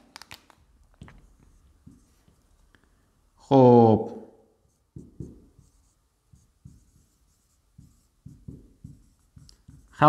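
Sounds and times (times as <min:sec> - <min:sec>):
marker writing on whiteboard: 0:01.0 - 0:02.5, 0:04.6 - 0:10.0.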